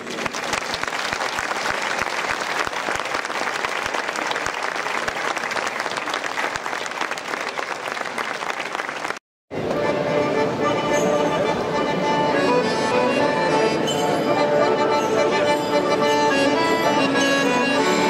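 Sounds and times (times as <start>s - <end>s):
crowd applauding: 0.0s - 9.2s.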